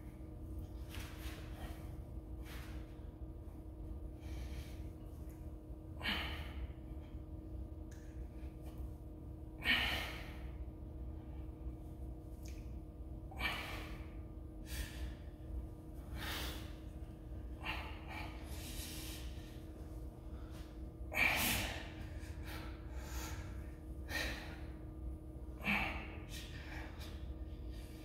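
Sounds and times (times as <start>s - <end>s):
steady low hum: 0.0s - 28.0s
man breathing heavily: 0.1s - 12.0s, 13.2s - 28.0s.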